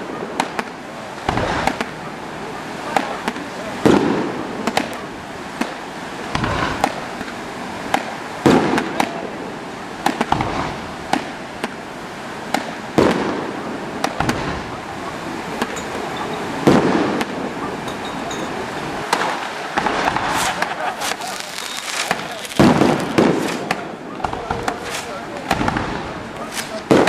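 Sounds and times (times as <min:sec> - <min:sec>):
fireworks booming: 0:00.0 - 0:27.0
fireworks cracking and popping: 0:00.0 - 0:27.0.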